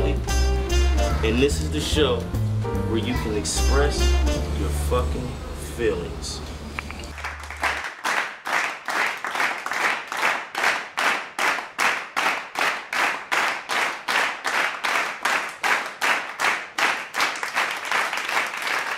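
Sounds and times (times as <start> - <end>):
rhythmic clapping: 6.8 - 18.9.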